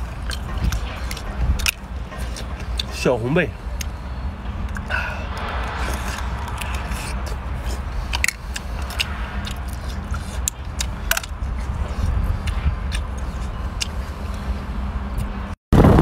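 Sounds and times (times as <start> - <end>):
shellfish shells clicking and scraping: 0.0 - 3.0
low rumble: 3.6 - 16.0.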